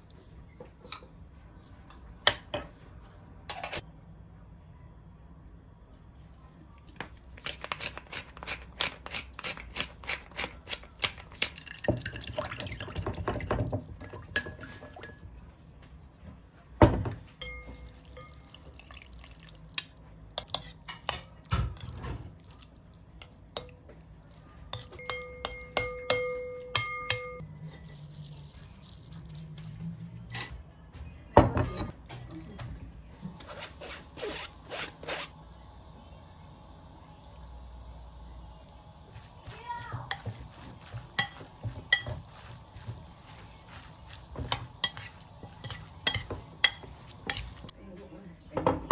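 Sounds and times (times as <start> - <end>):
fork scraping ceramic bowl: 7.4 - 11.0, 33.4 - 35.3, 44.5 - 47.7.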